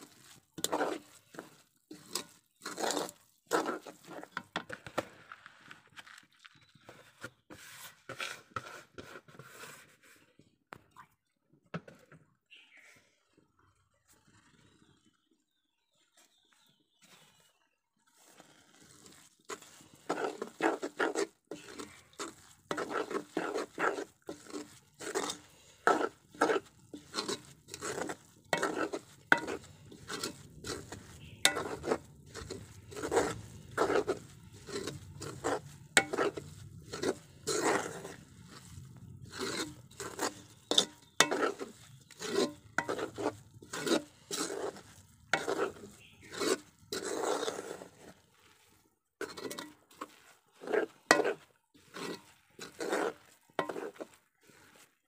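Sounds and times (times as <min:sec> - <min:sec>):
spoon scraping metal pan: 0:00.0 - 0:04.8, 0:18.4 - 0:48.2, 0:49.2 - 0:55.0.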